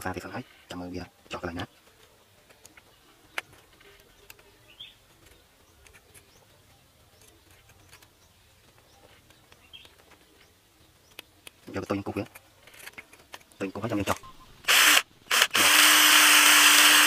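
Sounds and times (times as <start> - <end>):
bird chirps: 2.6 - 11.5, 13.6 - 14.7.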